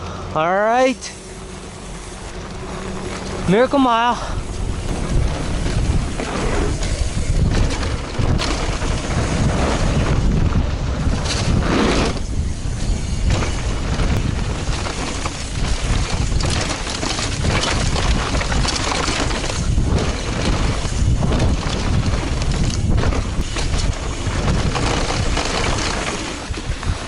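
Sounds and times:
bike rattling over bumps: 0.0 - 27.0
wind buffeting microphone: 2.0 - 27.0.

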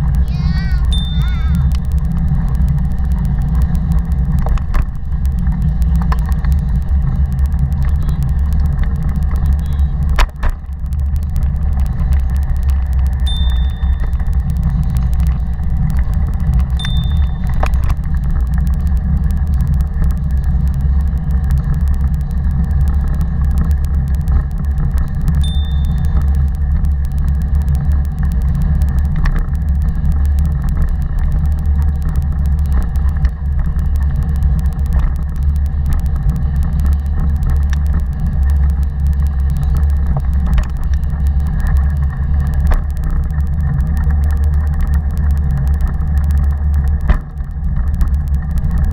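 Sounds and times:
bike rolling rumble: 0.0 - 48.9
high pings: 0.9 - 1.5, 13.3 - 14.3, 16.8 - 17.5, 25.4 - 26.2.

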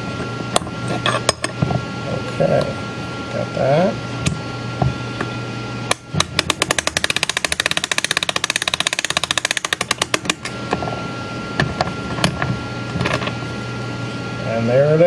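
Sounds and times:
ratchet clicking: 5.9 - 10.4.

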